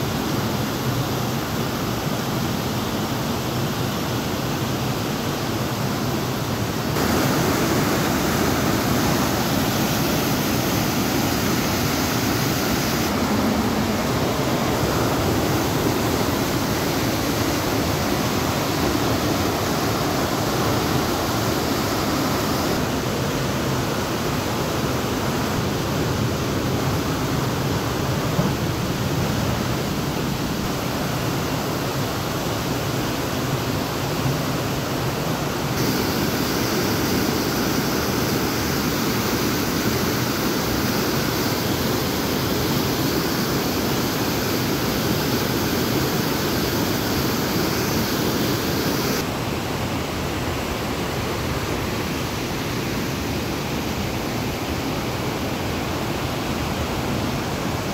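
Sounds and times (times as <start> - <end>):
waterfall pouring over rocks: 7.0 - 22.8, 35.8 - 49.2.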